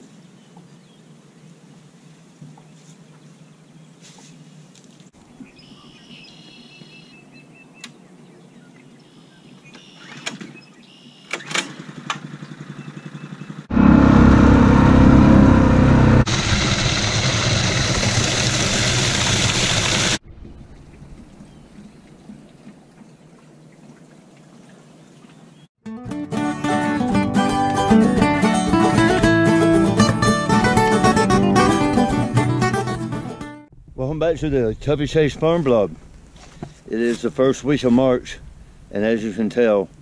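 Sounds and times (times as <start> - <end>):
pull starter pulls: 11.3 - 12.3
water pump engine running: 11.8 - 22.7
water gushing into tank: 16.2 - 24.2.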